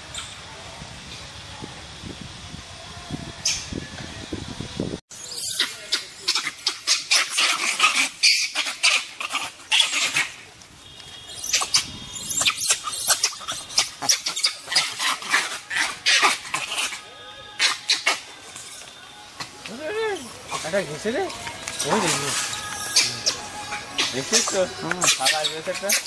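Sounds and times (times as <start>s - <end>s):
high-pitched animal cries: 5.2s - 10.4s, 11.3s - 17.0s, 17.6s - 18.2s, 22.0s - 26.0s.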